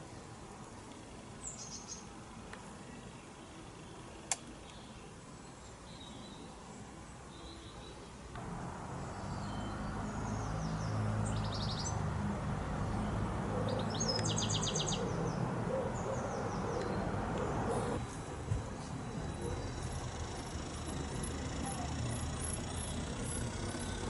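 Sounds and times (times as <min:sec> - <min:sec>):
birds chirping: 0:02.7 - 0:24.0
model train motor humming: 0:19.2 - 0:24.0.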